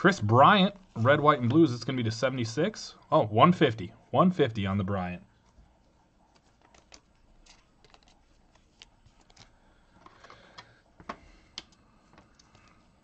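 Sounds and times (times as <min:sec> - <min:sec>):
trading cards clicking and rustling: 0:06.3 - 0:12.8.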